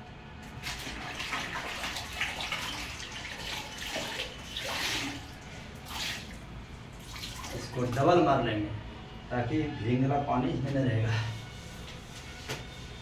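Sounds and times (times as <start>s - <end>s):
water splashing and sloshing: 0.4s - 8.1s
cloth rinsed in bucket of water: 0.4s - 8.3s.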